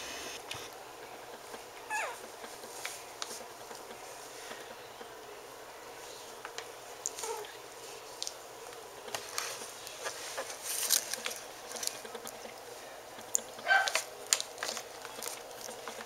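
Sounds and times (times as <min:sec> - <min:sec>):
puppy squeak: 0:01.9 - 0:02.2.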